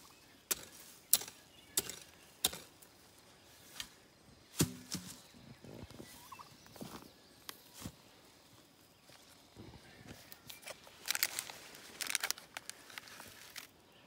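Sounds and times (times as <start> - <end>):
hoe striking damp soil: 0.0 - 3.0, 3.6 - 5.3.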